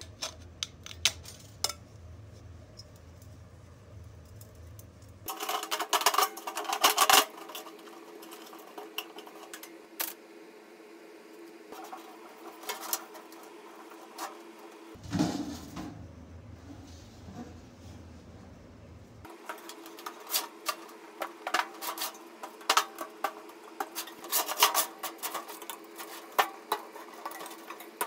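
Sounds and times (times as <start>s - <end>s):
steady hum: 0.0s - 28.0s
metal tube and tin clattering: 4.3s - 10.2s, 11.7s - 15.9s, 19.3s - 28.0s.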